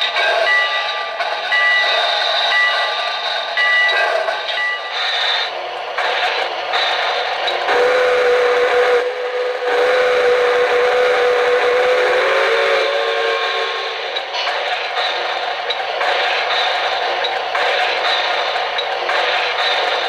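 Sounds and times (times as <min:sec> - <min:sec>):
steam hissing: 0:00.0 - 0:20.0
recorded steam whistle: 0:07.6 - 0:14.2.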